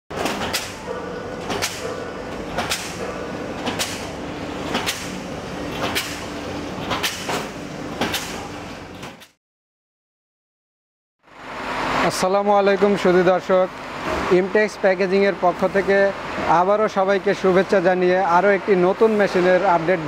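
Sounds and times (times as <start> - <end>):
sharp machine clack: 0.1 - 6.3, 6.9 - 8.5
packing machine hum: 0.1 - 9.3.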